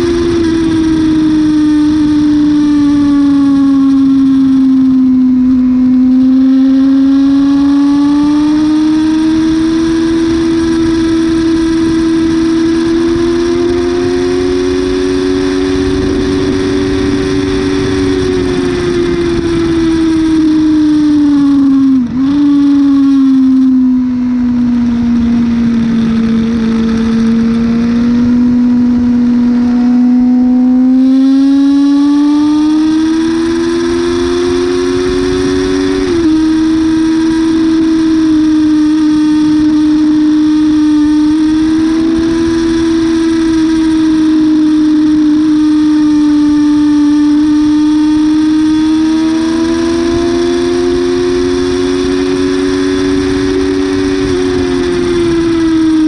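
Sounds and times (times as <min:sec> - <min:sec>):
motorcycle engine revving: 0:00.0 - 0:56.0
wind noise: 0:00.0 - 0:56.0.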